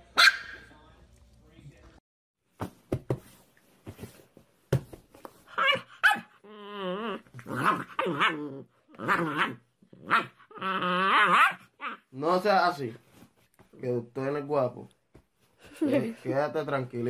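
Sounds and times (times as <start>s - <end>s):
puppy growling barks and whines: 5.5s - 12.2s.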